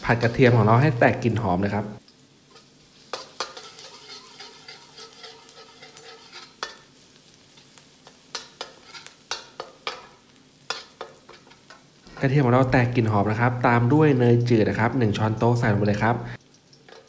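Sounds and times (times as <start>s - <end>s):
spatula scraping wok: 0.0s - 1.3s, 2.5s - 12.8s
garlic sizzling in oil: 0.0s - 17.0s.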